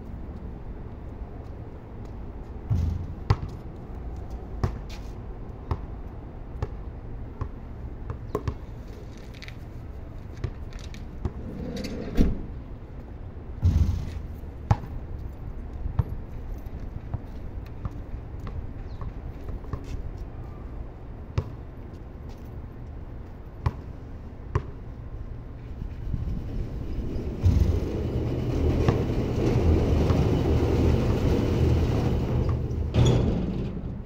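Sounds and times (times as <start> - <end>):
basketball bouncing on concrete: 2.7 - 3.8, 4.6 - 4.9, 5.6 - 5.9, 6.6 - 6.8, 7.4 - 8.7, 13.6 - 15.0, 21.4 - 21.6, 23.6 - 23.8, 24.5 - 24.8.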